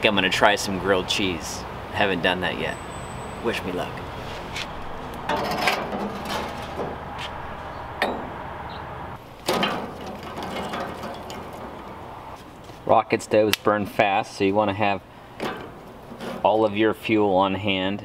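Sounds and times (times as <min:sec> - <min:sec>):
rustling clatter of sticks: 0:04.2 - 0:08.0, 0:09.2 - 0:12.9.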